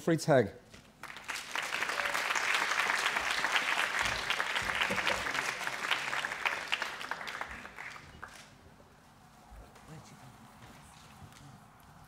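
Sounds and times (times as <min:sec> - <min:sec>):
audience applauding: 0:01.0 - 0:08.5.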